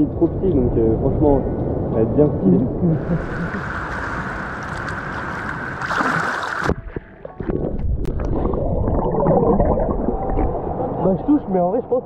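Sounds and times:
sea water rushing: 2.8s - 11.1s
water splashing from kicking legs: 3.6s - 8.2s.

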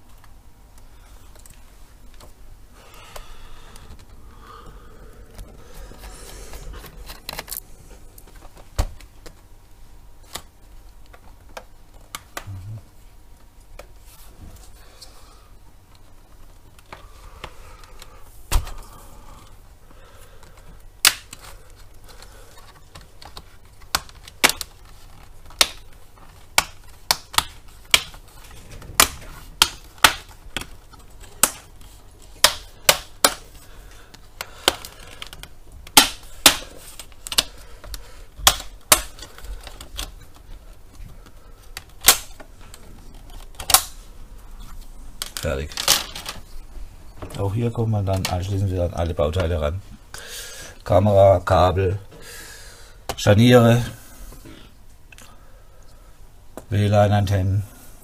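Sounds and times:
plastic clips snapping loose: 20.4s - 44.0s.

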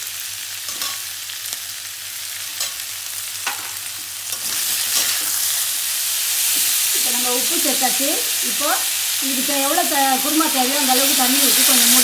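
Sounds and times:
vegetables sizzling in oil: 0.0s - 12.0s
spatula scraping and clinking: 0.7s - 1.0s, 3.5s - 5.7s.

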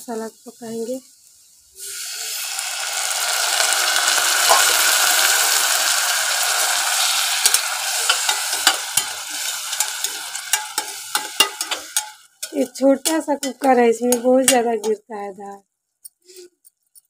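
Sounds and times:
oil sizzling in pressure cooker: 0.0s - 15.0s.

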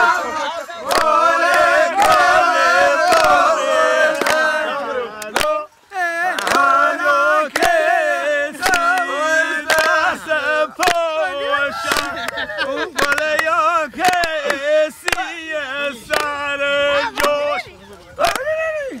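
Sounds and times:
men singing in chorus: 0.0s - 17.6s
sharp handclaps: 0.8s - 2.3s, 3.1s - 3.4s, 4.1s - 4.6s, 5.2s - 5.6s, 6.2s - 6.8s, 7.5s - 7.8s, 8.6s - 10.2s, 10.8s - 11.1s, 11.8s - 12.4s, 13.0s - 15.4s, 16.1s - 16.4s, 17.1s - 17.4s, 18.2s - 18.5s.

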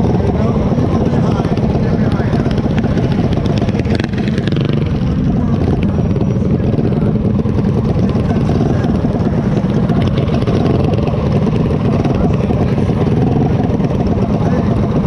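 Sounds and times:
mini bike engines idling: 0.0s - 15.0s.

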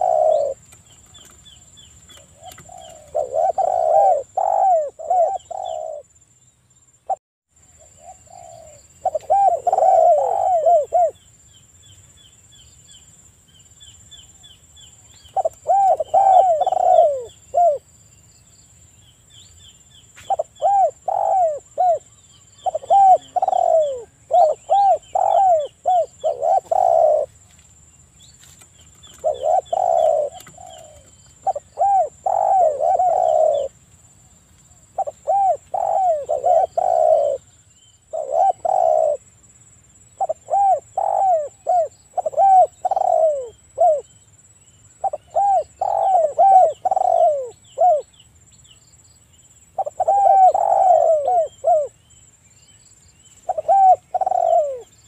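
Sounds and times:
dove cooing: 0.0s - 6.1s, 7.8s - 11.2s, 15.3s - 17.8s, 20.3s - 27.4s, 29.0s - 33.8s, 35.0s - 37.5s, 38.1s - 39.2s, 40.2s - 44.1s, 45.0s - 48.1s, 49.8s - 52.0s, 53.4s - 55.0s
small birds chirping: 0.0s - 39.2s, 39.9s - 55.0s.

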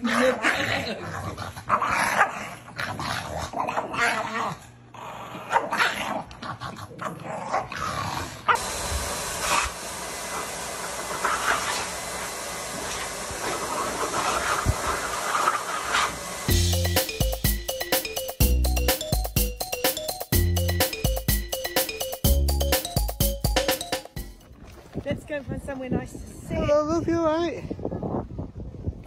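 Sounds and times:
dogs growling and yipping: 0.0s - 16.6s.

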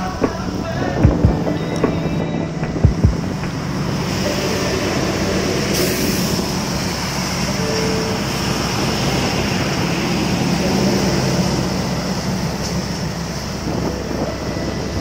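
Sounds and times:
low thumps: 0.0s - 5.0s
trucks passing: 0.0s - 15.0s
tyres on wet road: 0.0s - 15.0s.

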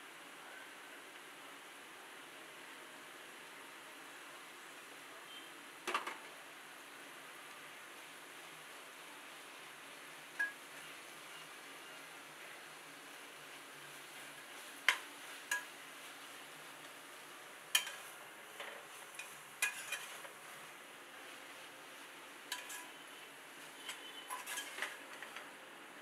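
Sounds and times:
faint steady hiss: 0.0s - 26.0s
spatula clinking against metal pot: 14.9s - 15.7s, 17.7s - 18.1s, 19.2s - 20.2s, 22.5s - 23.0s, 23.8s - 25.0s.

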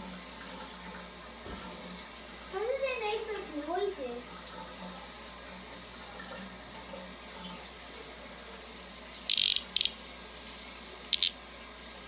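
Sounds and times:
cicada buzzing squawks: 9.3s - 9.9s, 11.2s - 11.4s.

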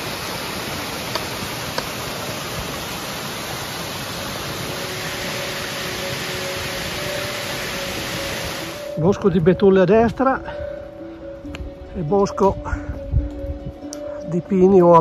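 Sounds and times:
waterfall splashing on rock: 0.0s - 8.9s.

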